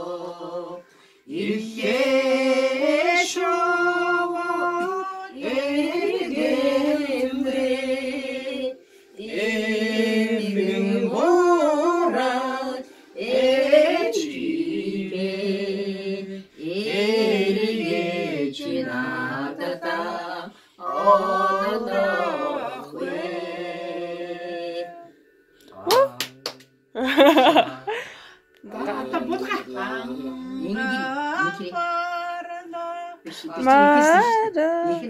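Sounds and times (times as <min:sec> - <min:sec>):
person singing unaccompanied: 0:28.6 - 0:35.0.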